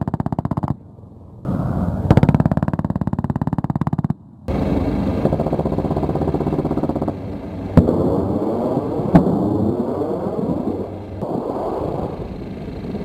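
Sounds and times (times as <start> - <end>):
helicopter rotor and engine: 1.9 - 13.0
explosion bangs: 7.7 - 12.2.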